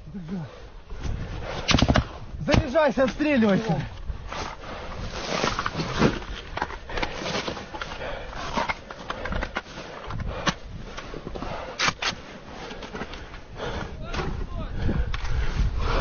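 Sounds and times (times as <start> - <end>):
clothing and gear rustling: 2.8 - 14.6.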